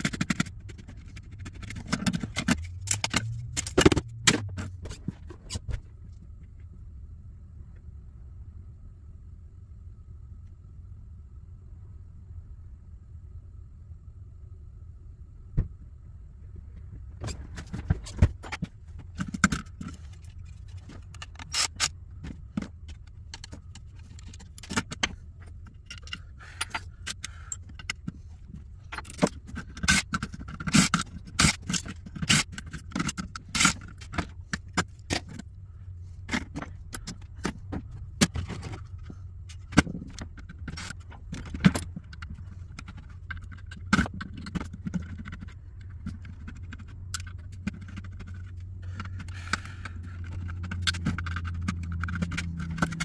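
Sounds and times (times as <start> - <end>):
metal parts clicking and clinking: 0.0 - 5.7, 17.2 - 28.2, 28.8 - 35.5, 36.3 - 53.0
steady low hum: 0.0 - 53.0.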